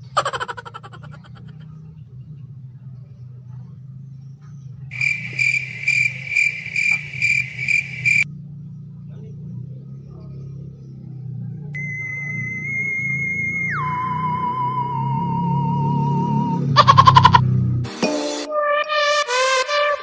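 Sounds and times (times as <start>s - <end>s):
cricket chirping: 4.9s - 8.3s, 11.8s - 17.4s
held electronic tone: 11.8s - 17.4s.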